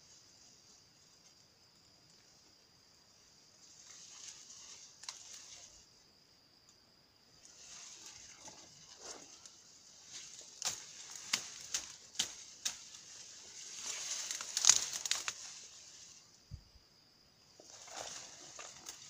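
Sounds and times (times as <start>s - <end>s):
brush rustling: 3.5s - 6.0s, 7.4s - 16.6s, 17.6s - 19.0s
twigs crackling and snapping: 10.3s - 13.0s, 13.7s - 15.5s.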